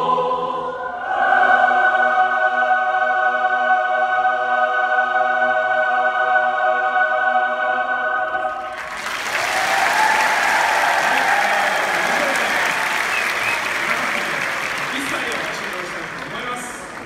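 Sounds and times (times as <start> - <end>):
choir holding a chord: 0.0 - 9.0
applause: 8.6 - 17.0.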